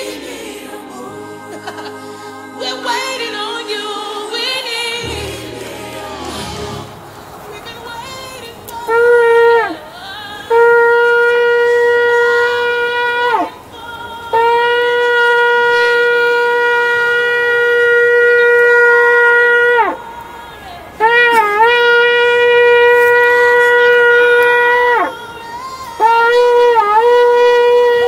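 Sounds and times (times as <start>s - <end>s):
shofar blasts: 8.9s - 9.8s, 10.5s - 13.5s, 14.3s - 20.0s, 21.0s - 25.1s, 26.0s - 28.0s.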